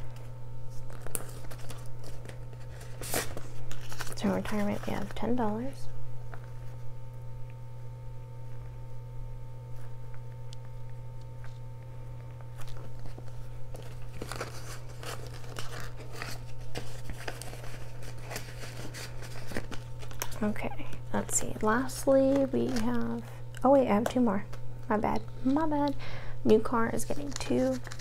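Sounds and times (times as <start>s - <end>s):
steady low hum: 0.0s - 28.0s
paper bills rustling: 0.1s - 5.5s, 12.4s - 23.2s, 26.9s - 28.0s.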